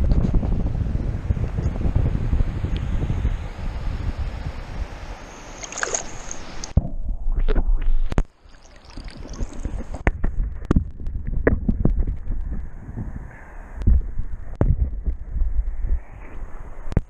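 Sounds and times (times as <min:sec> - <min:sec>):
river water sloshing and gurgling: 0:05.1 - 0:06.8, 0:08.3 - 0:10.0.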